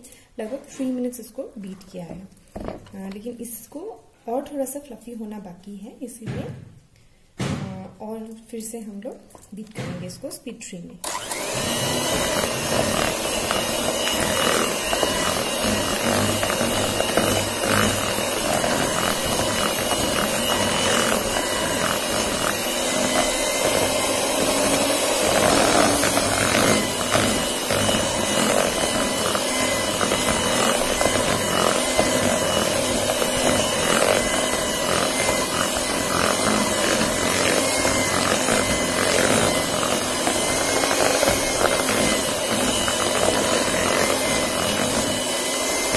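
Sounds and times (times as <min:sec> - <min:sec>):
electric hand mixer whirring: 0:11.0 - 0:45.9.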